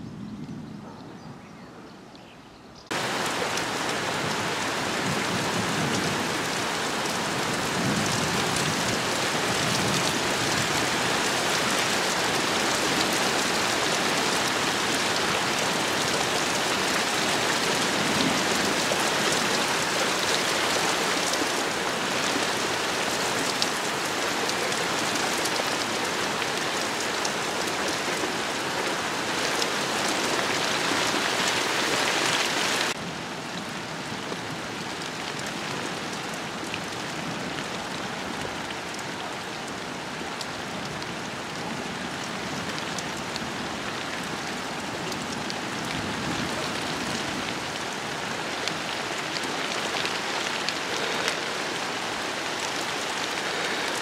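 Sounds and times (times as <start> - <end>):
heavy rain falling: 2.9 - 54.0.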